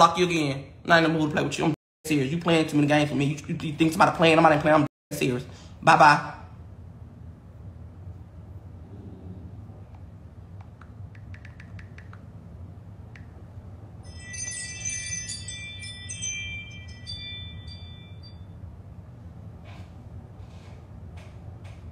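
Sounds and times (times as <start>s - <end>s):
low steady hum: 0.4s - 21.9s.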